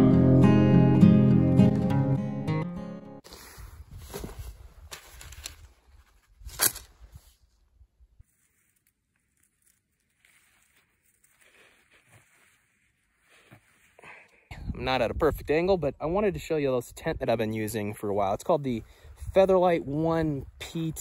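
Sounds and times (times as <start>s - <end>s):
rustling handling noise: 3.2s - 7.6s, 8.2s - 14.0s
sharp crackle: 8.2s - 13.9s
wind rumble on microphone: 14.5s - 16.4s.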